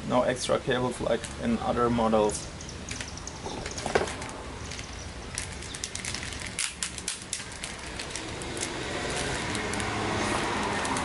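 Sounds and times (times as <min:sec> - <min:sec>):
plastic bag crinkling: 0:03.0 - 0:11.0.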